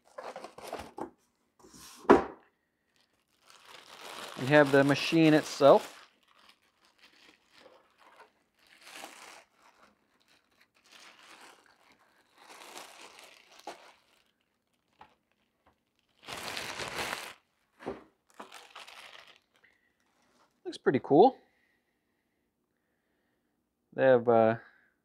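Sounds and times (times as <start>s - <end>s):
packaging crinkling and rustling: 0.0s - 1.3s, 2.9s - 20.6s.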